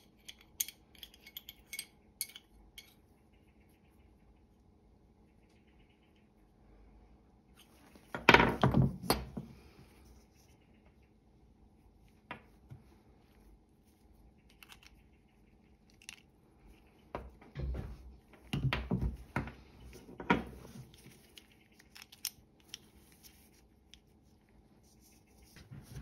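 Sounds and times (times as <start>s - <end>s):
small metal parts clinking on wood: 0.0s - 3.0s, 21.2s - 22.9s.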